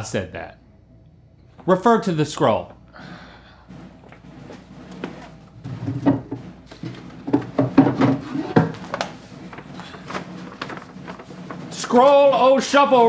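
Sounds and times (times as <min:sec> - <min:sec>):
wooden cabinet knocks and clicks: 0:05.6 - 0:09.1.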